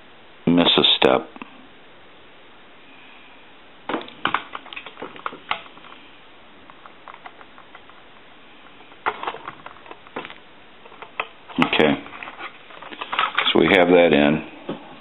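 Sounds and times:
hand tools clicking and tapping: 0:04.0 - 0:06.0, 0:06.6 - 0:11.8.

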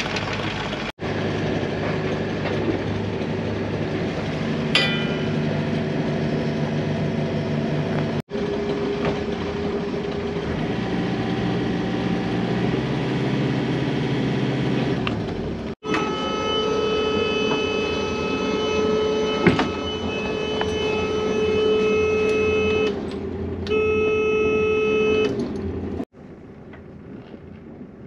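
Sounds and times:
diesel engine running at low revs: 0:00.0 - 0:28.0
short metallic clink: 0:04.8 - 0:05.5.

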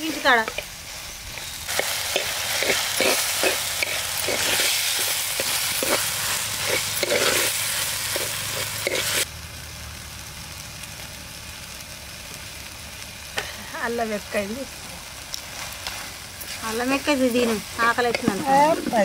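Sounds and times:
vegetables sizzling in oil: 0:00.0 - 0:19.0
metal ladle scraping pot: 0:01.4 - 0:09.2.

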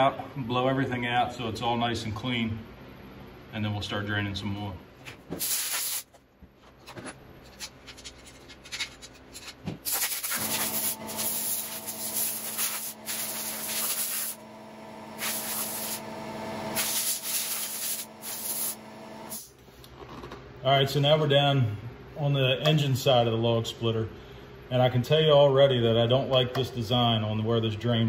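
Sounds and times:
compressed air blasts hissing: 0:05.4 - 0:06.1, 0:09.8 - 0:14.4, 0:15.2 - 0:16.0, 0:16.7 - 0:19.5
steady hum: 0:09.3 - 0:19.8
compressed air puffs: 0:09.8 - 0:14.4, 0:15.2 - 0:16.0, 0:16.7 - 0:19.5.

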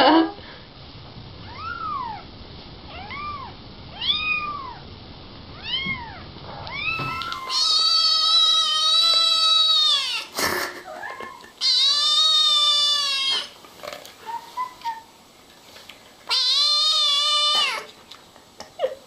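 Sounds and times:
kitten meowing: 0:01.5 - 0:02.3, 0:02.9 - 0:04.8, 0:05.6 - 0:10.3, 0:11.0 - 0:13.6, 0:16.3 - 0:17.9.

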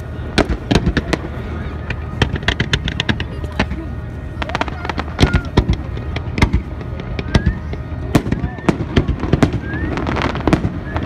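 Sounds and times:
fireworks banging and crackling: 0:00.0 - 0:11.0.

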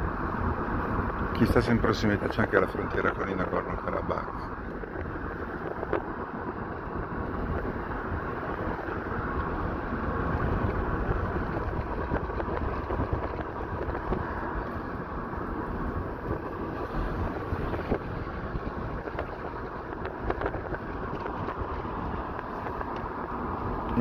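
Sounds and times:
car road and wind noise: 0:00.0 - 0:24.0.

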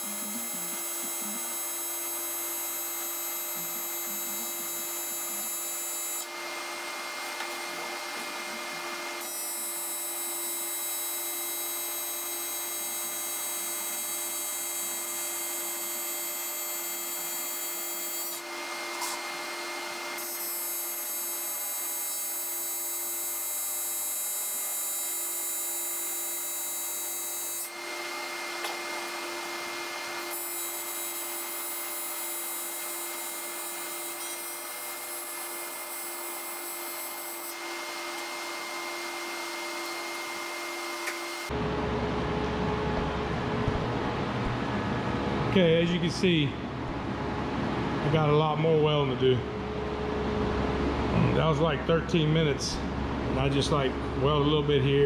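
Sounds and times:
welding arc buzzing: 0:00.0 - 0:41.6.

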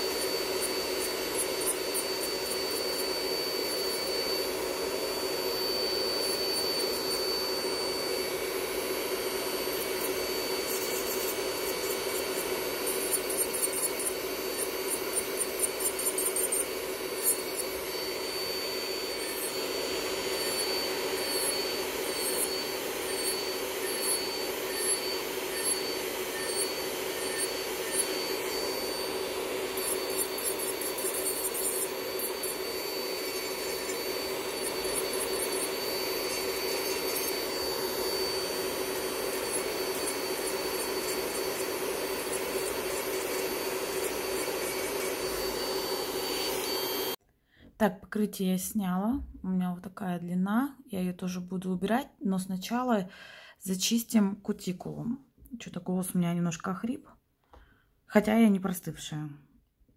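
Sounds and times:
extractor fan humming: 0:00.0 - 0:47.2
nail drill whining: 0:00.0 - 0:47.2.

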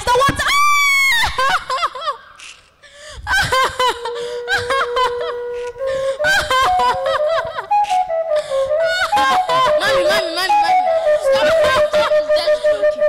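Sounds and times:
flute long steady notes: 0:03.6 - 0:13.0.

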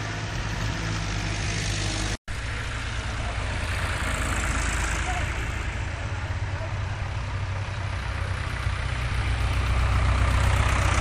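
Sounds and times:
tractor engine driving past: 0:00.0 - 0:11.0.

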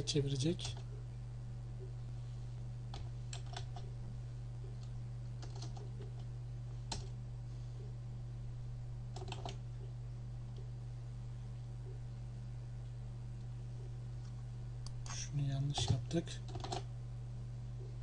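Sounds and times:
low electrical hum: 0:00.0 - 0:18.0
computer keyboard typing: 0:02.9 - 0:03.9, 0:04.8 - 0:06.3, 0:06.9 - 0:07.2, 0:09.1 - 0:09.6, 0:15.7 - 0:16.9.

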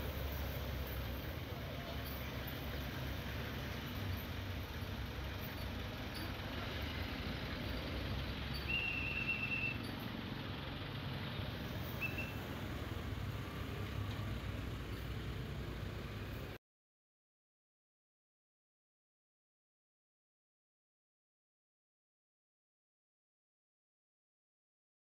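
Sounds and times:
traffic passing slowly: 0:00.0 - 0:16.6.

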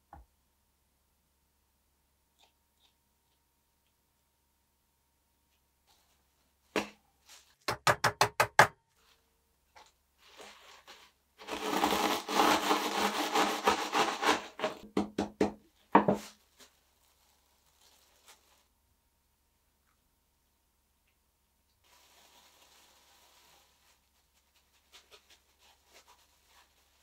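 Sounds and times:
biscuits crunching in plastic bag: 0:10.8 - 0:14.8, 0:16.4 - 0:18.7, 0:21.8 - 0:24.4.

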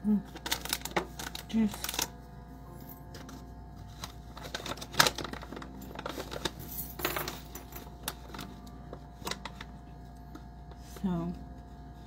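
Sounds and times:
plastic pouch crinkling: 0:00.3 - 0:02.2, 0:04.0 - 0:06.6.

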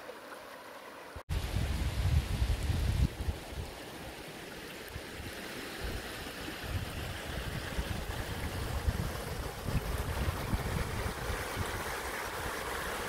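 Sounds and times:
river water trickling over rocks: 0:00.0 - 0:01.2, 0:02.2 - 0:13.0
wind buffeting microphone: 0:01.3 - 0:03.7, 0:06.6 - 0:13.0.

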